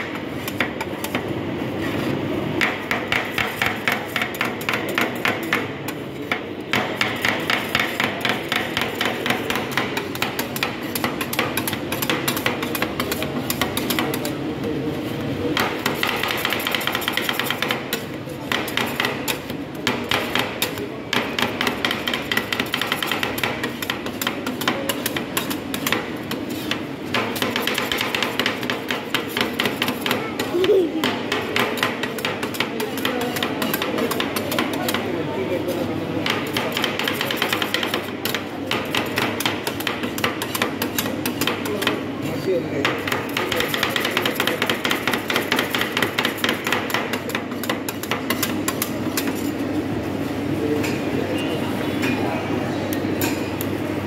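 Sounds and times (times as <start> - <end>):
metal spatulas clacking on steel: 6.3 - 14.3, 15.6 - 35.1, 36.2 - 42.0, 42.8 - 49.6, 52.9 - 53.7.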